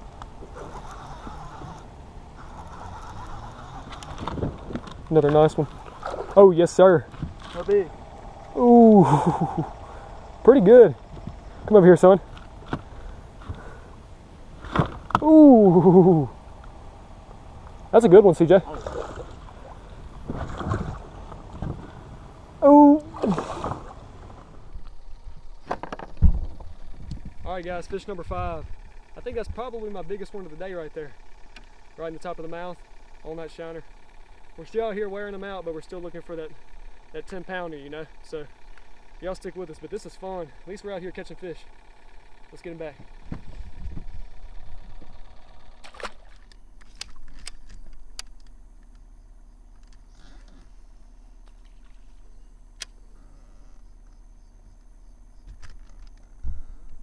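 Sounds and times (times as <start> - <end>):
water sloshing: 18.6 - 22.0, 23.0 - 27.1, 45.0 - 46.7.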